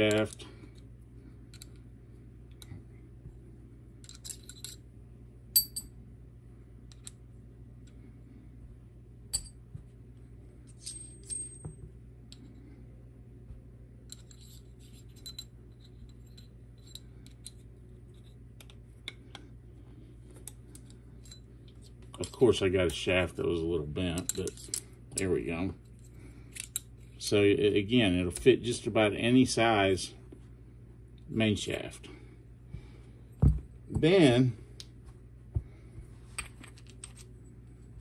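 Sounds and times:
faint steady hum: 0:00.0 - 0:38.0
metal parts clinking and tapping: 0:04.0 - 0:04.9, 0:05.6 - 0:05.9, 0:06.9 - 0:07.2, 0:09.3 - 0:09.6, 0:10.6 - 0:12.6, 0:14.0 - 0:19.4, 0:24.1 - 0:27.1, 0:36.4 - 0:37.4
sharp ringing metal clink: 0:05.6 - 0:06.0.

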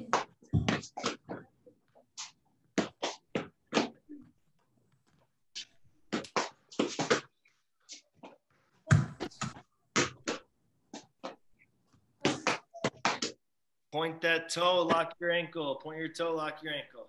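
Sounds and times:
ball thudding on foot: 0:08.9 - 0:11.4.

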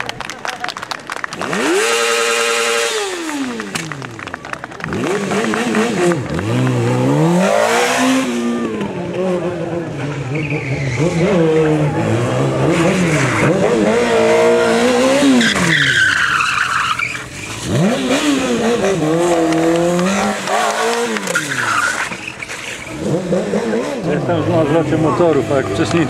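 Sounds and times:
motorcycle engine revving: 0:01.3 - 0:26.0
tyre squealing: 0:10.1 - 0:12.1, 0:12.8 - 0:24.1.

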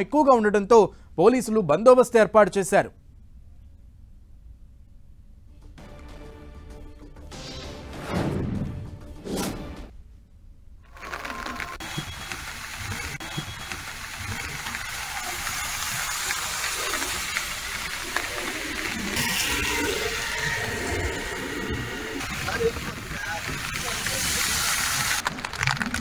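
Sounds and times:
rushing water from rain and floodwater: 0:11.8 - 0:19.4, 0:22.2 - 0:25.6.

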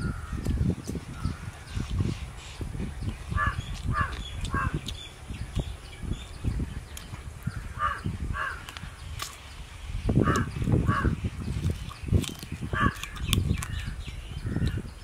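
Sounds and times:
crow cawing: 0:03.4 - 0:04.8, 0:07.5 - 0:08.7, 0:10.2 - 0:11.2.

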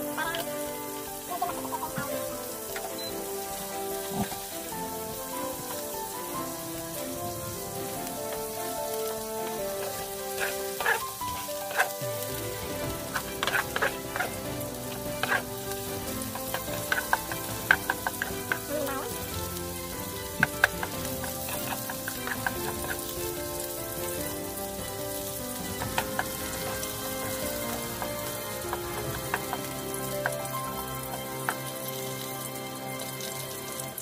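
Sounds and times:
garlic sizzling in hot oil: 0:00.0 - 0:34.0
spatula clicking and scraping pot: 0:07.5 - 0:32.3.

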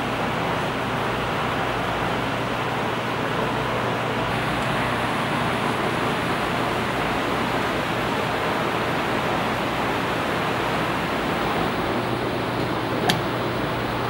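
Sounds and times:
rushing air-handling noise: 0:10.4 - 0:14.0.

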